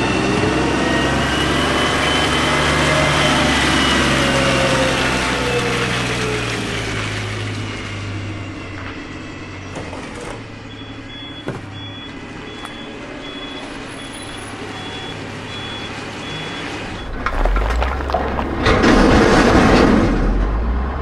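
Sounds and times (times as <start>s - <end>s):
garbage truck engine running: 0.0s - 21.0s
trash sliding and tumbling: 9.7s - 10.4s, 16.9s - 20.6s
backup alarm beeping: 10.7s - 17.3s.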